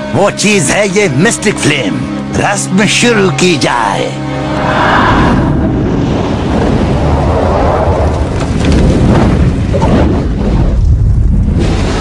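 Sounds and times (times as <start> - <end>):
cartoon rumbling eruption effect: 4.7 - 12.0
sharp crackles: 6.6 - 12.0.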